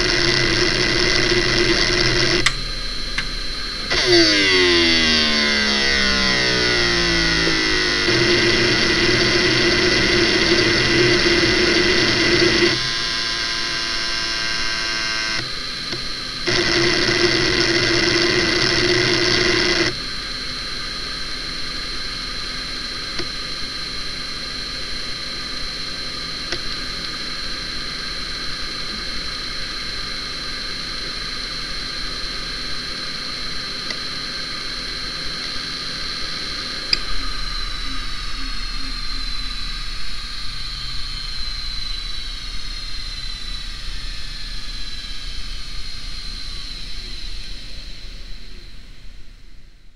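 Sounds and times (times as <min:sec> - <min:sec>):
hard drive click: 0:00.0 - 0:13.0
hard drive heads seeking: 0:00.0 - 0:15.4
hard drive spindle whine: 0:00.0 - 0:49.9.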